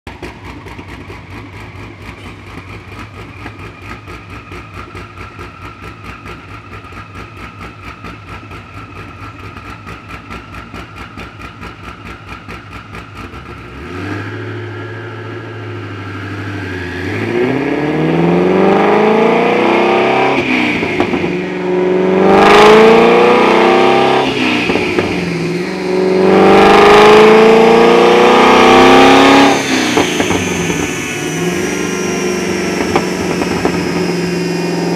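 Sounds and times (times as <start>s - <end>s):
car engine revving: 9.0s - 34.9s.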